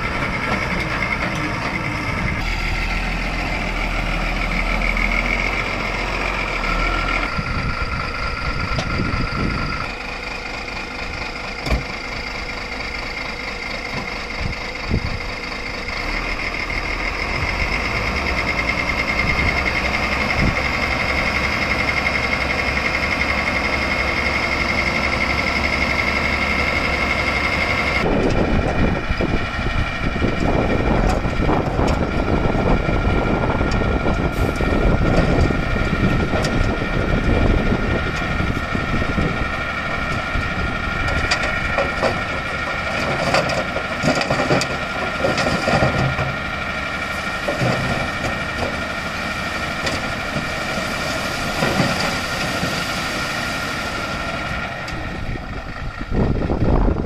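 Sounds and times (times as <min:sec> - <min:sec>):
diesel engine idling: 0:00.0 - 0:57.0
soil and stones sliding out: 0:49.3 - 0:54.2.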